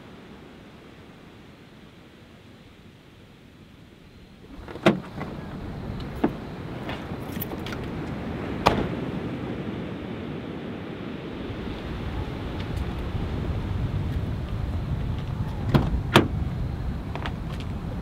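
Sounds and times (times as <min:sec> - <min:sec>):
surf: 0:00.0 - 0:18.0
wind: 0:00.0 - 0:18.0
van door metallic clicks: 0:04.6 - 0:05.3, 0:15.7 - 0:16.4.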